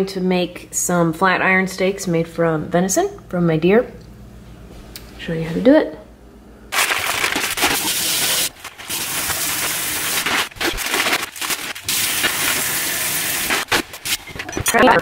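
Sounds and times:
plastic bag and paper crinkling: 6.7s - 15.0s
kitchen tap running: 7.0s - 10.4s, 11.8s - 13.6s.

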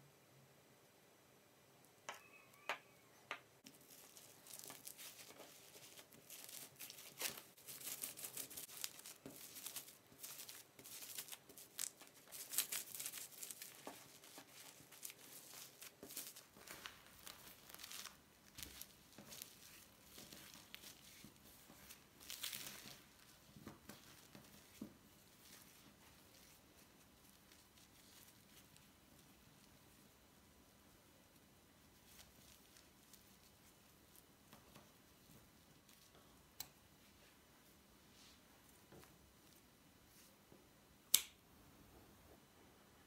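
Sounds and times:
cling film crinkling: 3.6s - 29.3s.

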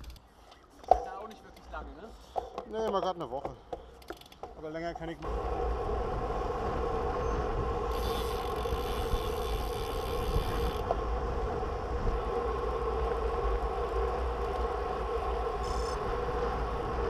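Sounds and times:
road bike rolling on asphalt: 3.8s - 17.0s
wind rushing over microphone: 5.2s - 17.0s.

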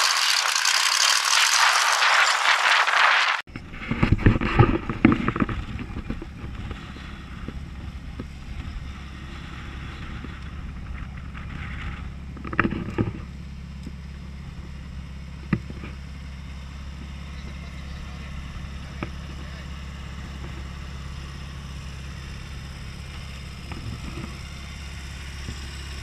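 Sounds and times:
race car engine idling: 5.5s - 26.0s.

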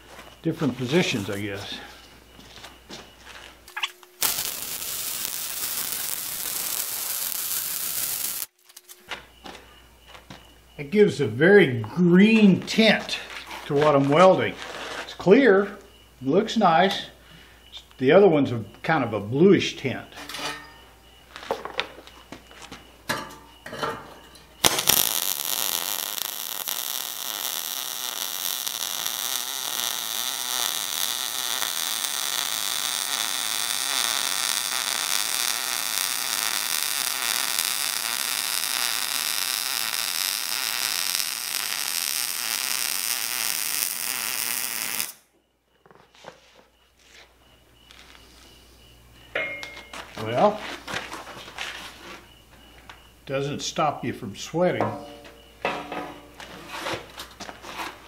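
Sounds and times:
welding arc sizzle: 0.7s - 1.6s, 3.7s - 9.0s, 24.6s - 45.3s.

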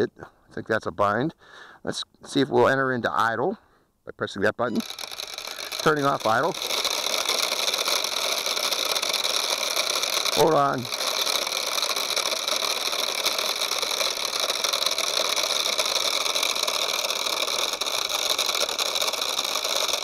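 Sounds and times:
quadcopter motors whirring: 4.7s - 20.0s.

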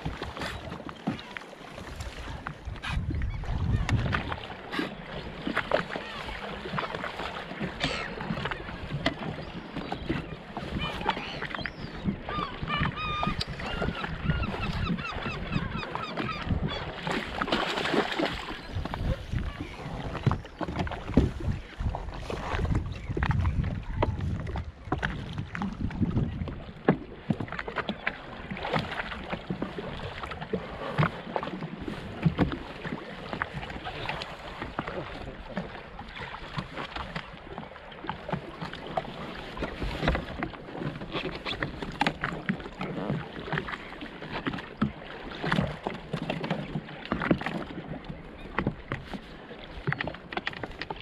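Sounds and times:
water lapping against hull: 0.0s - 51.0s
wind on microphone: 1.9s - 4.6s, 8.7s - 27.6s.

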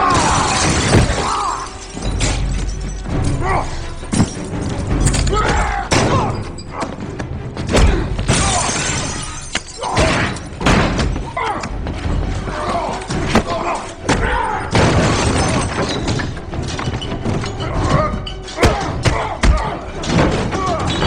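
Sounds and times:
glass breaking: 0.0s - 6.7s, 8.2s - 11.4s, 13.0s - 21.0s
dramatic score music: 0.0s - 21.0s
men grunting: 5.3s - 7.0s, 12.4s - 14.8s, 17.6s - 21.0s
crashes and thuds of blows: 9.9s - 11.4s.

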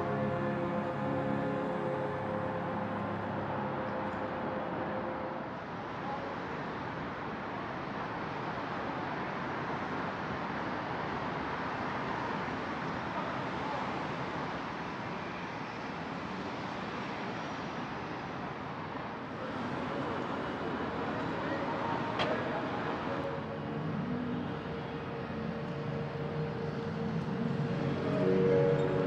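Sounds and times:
passing cars: 0.0s - 29.0s.

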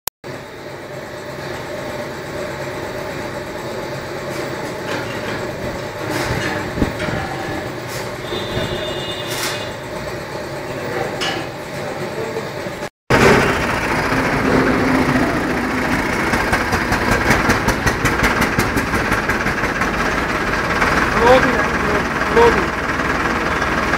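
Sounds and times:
short high squeal: 7.9s - 9.9s
sharp metallic clanks: 10.8s - 11.7s
straw blower droning: 13.1s - 23.9s.

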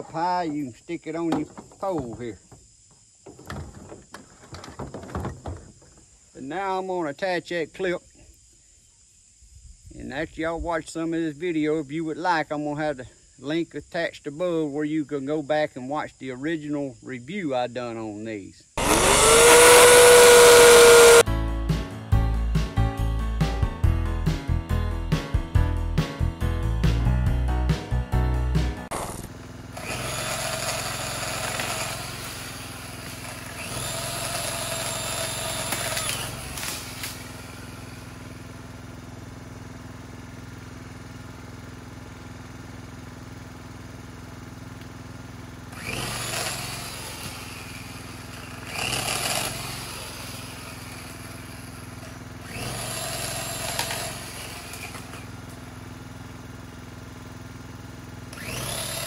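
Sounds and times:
electric chainsaw cutting wood: 18.8s - 21.3s, 28.9s - 39.0s, 43.5s - 56.2s, 57.4s - 59.0s.

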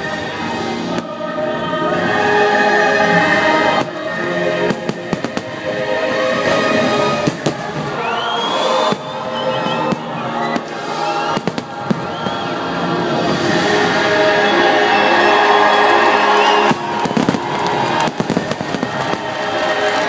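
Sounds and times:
loud music: 0.0s - 20.0s
fireworks bursting with bangs: 3.4s - 14.3s, 15.4s - 20.0s.

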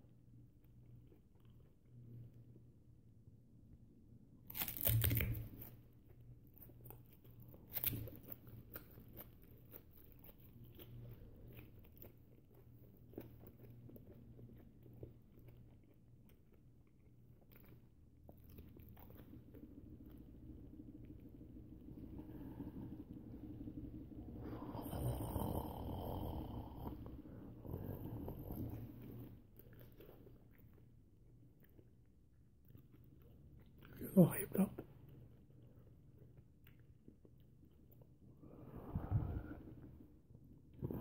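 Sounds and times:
banana peel crunching: 4.5s - 5.8s, 6.8s - 11.0s
person chewing: 4.5s - 34.0s, 34.8s - 41.0s.

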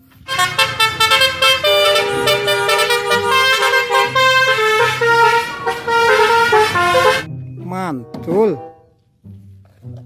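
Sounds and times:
musical bus air horn: 0.0s - 7.3s
background music: 0.0s - 10.0s.

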